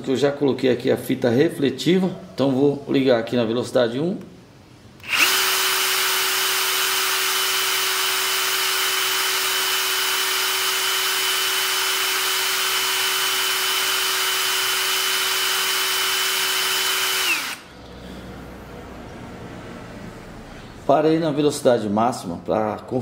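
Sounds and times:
cordless drill motor whining: 5.0s - 17.7s.

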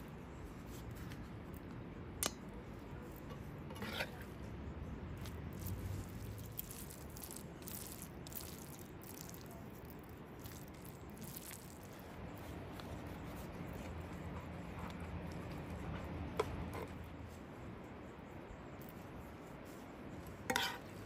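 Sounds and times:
spoon scraping: 3.1s - 4.4s, 5.2s - 17.1s, 20.4s - 21.0s
wet squishing of filling: 5.2s - 16.1s.

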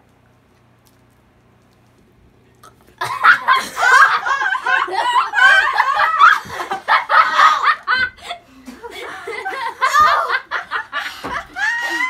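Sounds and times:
girls laughing: 3.0s - 12.0s.

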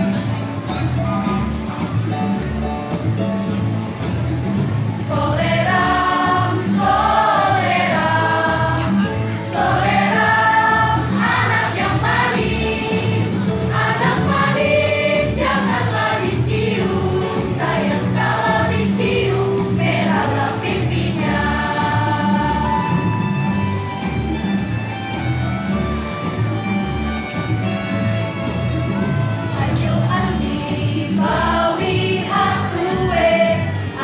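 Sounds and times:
pulsing low accompaniment: 0.0s - 34.0s
choir singing through microphone: 4.6s - 23.6s, 28.6s - 34.0s.

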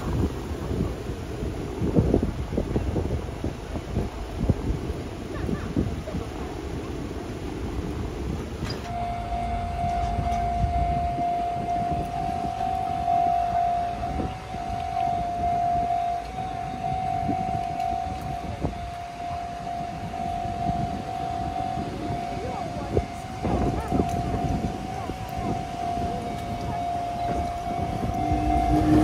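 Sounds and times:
low wind: 0.0s - 29.0s
traffic rumble: 0.0s - 29.0s
level crossing warning bell: 8.8s - 29.0s.

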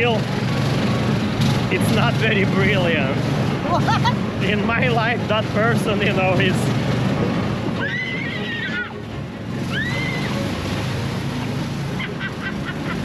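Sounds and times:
vehicle engine running: 0.0s - 13.0s
water sloshing and splashing: 3.2s - 13.0s.

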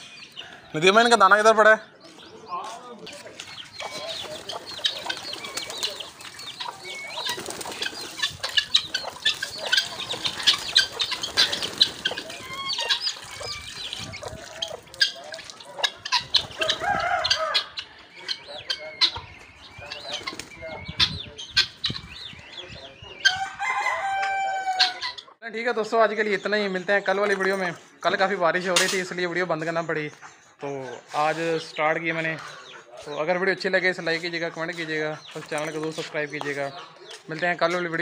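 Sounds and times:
hens clucking: 0.0s - 38.0s
pigeon wings flapping: 7.3s - 8.2s.

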